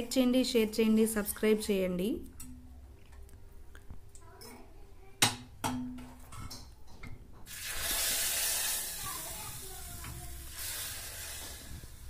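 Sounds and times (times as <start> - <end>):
hot oil sizzling: 7.5 - 12.0.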